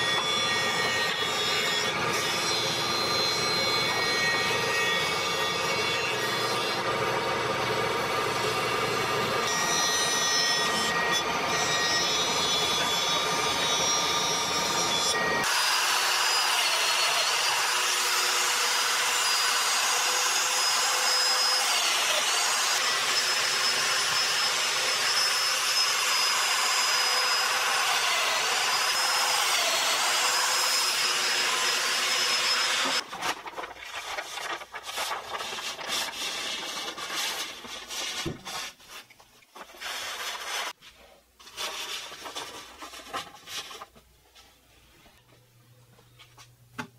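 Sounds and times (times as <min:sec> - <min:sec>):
paper crackling and rustling: 0:33.0 - 0:40.7, 0:41.4 - 0:44.6.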